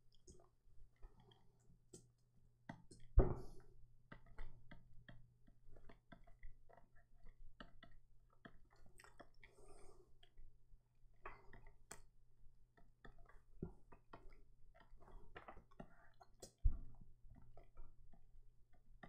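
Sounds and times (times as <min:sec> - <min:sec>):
clicking and tapping at computer: 0:01.2 - 0:09.4.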